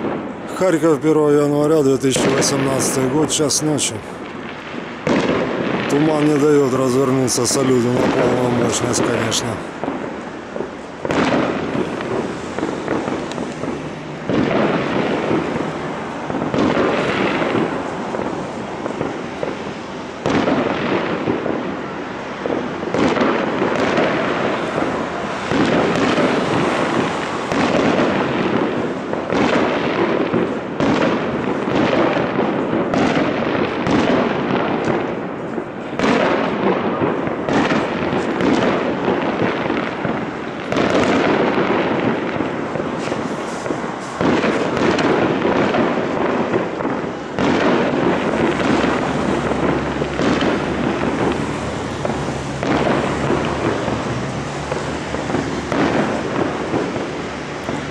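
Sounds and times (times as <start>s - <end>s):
fireworks bangs: 0.0s - 57.9s
fireworks crackling: 0.0s - 57.9s.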